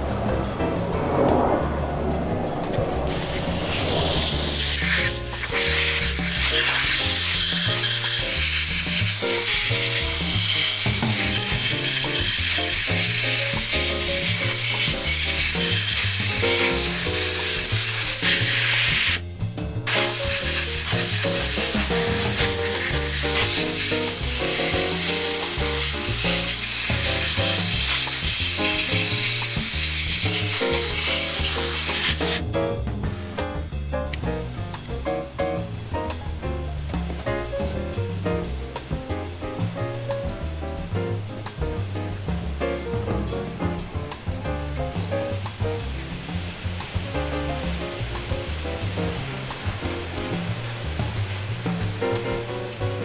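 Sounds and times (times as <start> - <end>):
background music with bass line: 0.0 - 53.0
constant hiss: 3.0 - 32.7, 33.4 - 53.0.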